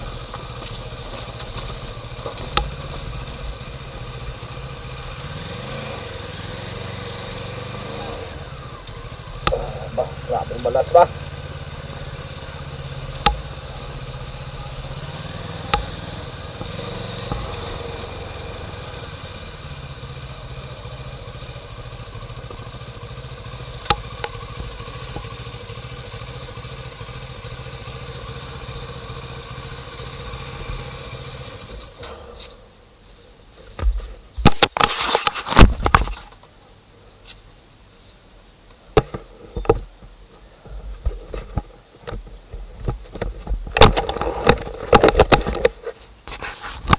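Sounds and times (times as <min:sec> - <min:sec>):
engine humming: 0:00.0 - 0:34.8.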